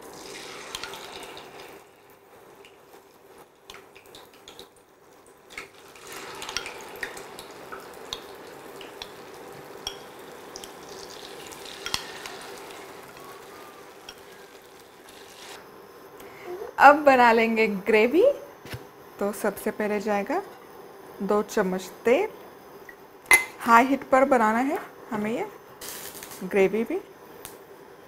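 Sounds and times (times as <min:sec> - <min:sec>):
food deep-frying in hot oil: 0:00.0 - 0:15.6, 0:25.2 - 0:27.0.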